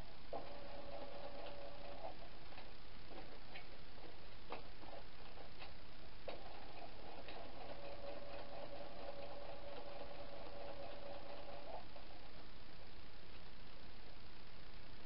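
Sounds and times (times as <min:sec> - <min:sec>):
sewing machine motor humming: 0:00.3 - 0:02.6, 0:06.3 - 0:12.2.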